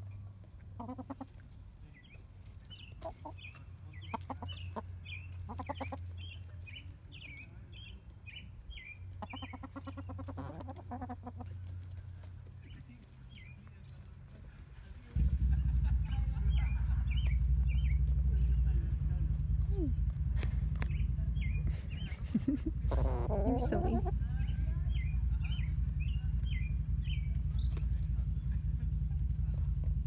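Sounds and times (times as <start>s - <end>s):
hens clucking: 0.0s - 18.7s, 19.3s - 29.9s
high chirps: 16.2s - 18.2s.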